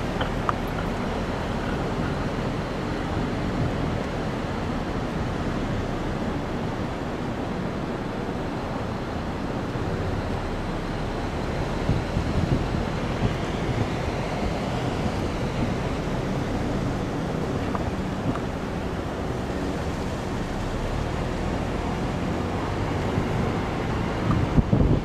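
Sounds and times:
wind buffeting microphone: 11.4s - 20.6s, 21.4s - 25.0s.

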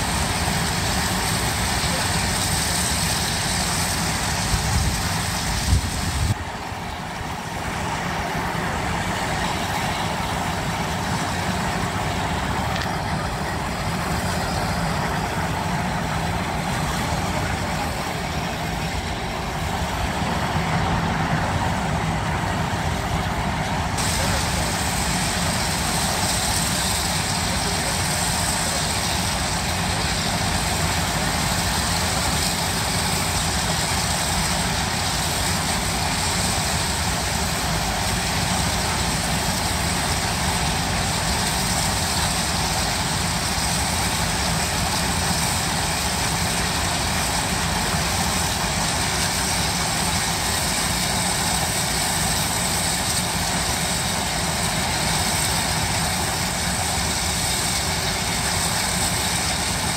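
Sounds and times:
rush of steam and exhaust: 0.0s - 59.9s.

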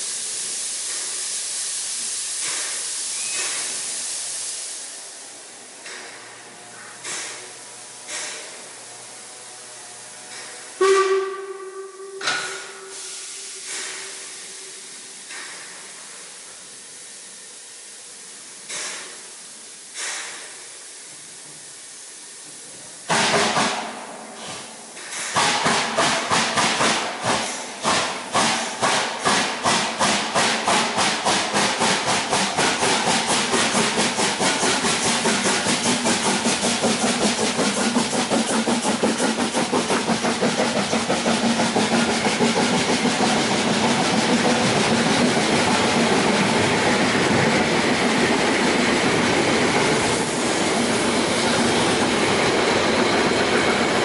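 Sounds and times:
loud burst of steam: 0.0s - 54.0s
steam hissing from cylinder drains: 0.0s - 54.0s
steam locomotive chuffing: 0.0s - 54.0s
steam whistle blast: 3.0s - 3.9s, 10.8s - 13.9s.

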